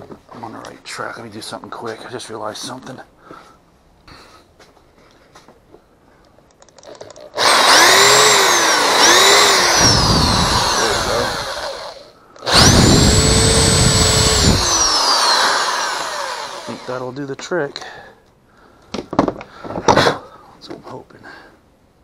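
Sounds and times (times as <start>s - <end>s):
cordless drill motor: 7.4s - 17.0s.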